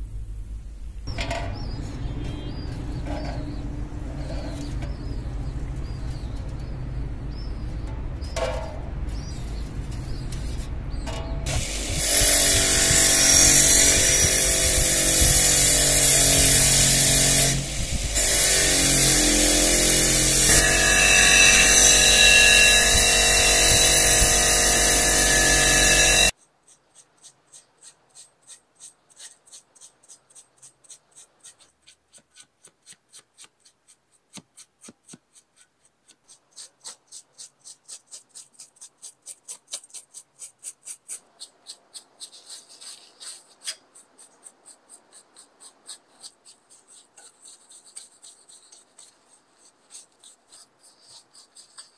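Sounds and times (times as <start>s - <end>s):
hand-rubbing strokes: 1.6s - 51.9s
electric power tool running: 11.5s - 26.3s.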